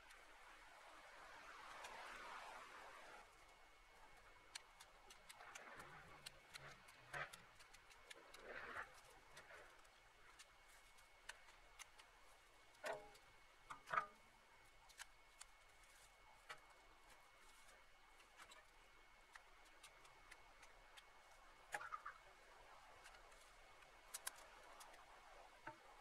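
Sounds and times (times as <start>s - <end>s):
dry brush crackling: 3.2s - 26.0s.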